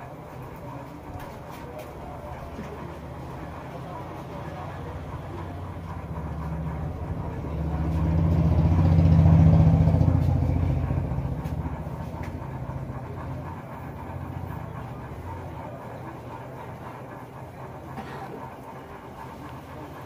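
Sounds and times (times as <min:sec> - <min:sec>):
vehicle engine passing by: 0:04.3 - 0:15.5.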